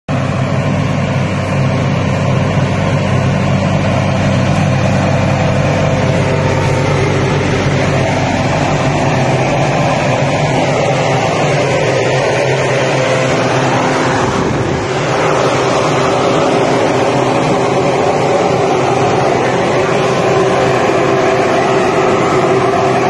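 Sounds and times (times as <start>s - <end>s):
diesel tractor engine running: 0.1s - 23.0s.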